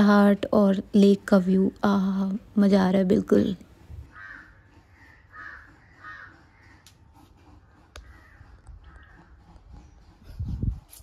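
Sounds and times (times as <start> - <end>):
faint bird calls: 4.1 - 10.3.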